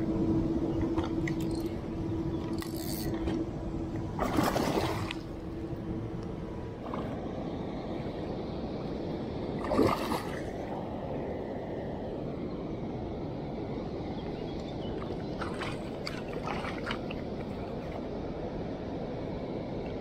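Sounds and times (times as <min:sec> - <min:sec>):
wind: 0:00.0 - 0:20.0
rushing water: 0:04.2 - 0:05.4, 0:08.8 - 0:11.2, 0:14.9 - 0:18.1.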